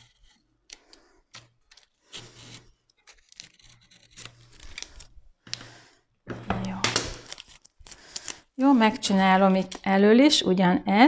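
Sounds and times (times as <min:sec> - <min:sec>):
knife scraping adhesive film: 0:00.0 - 0:05.7.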